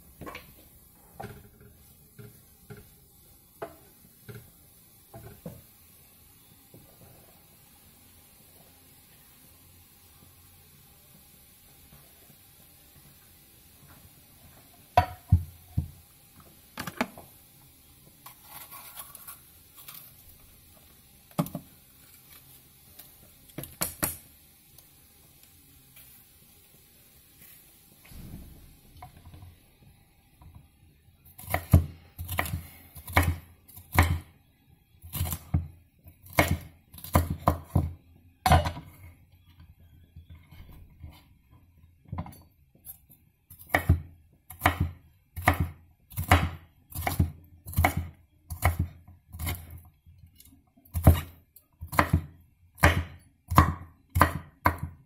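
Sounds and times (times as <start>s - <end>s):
knife chopping on wooden board: 43.7s - 49.6s, 51.9s - 54.9s.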